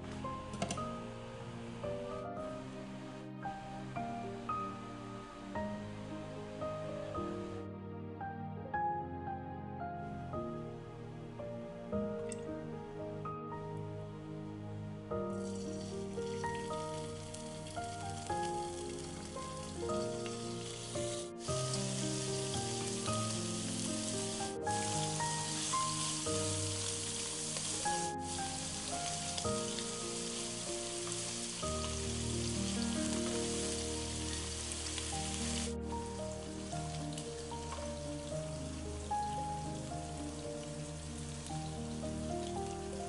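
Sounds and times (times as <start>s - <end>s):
background music: 0.0s - 43.0s
beef sizzling in a pan: 15.4s - 43.0s.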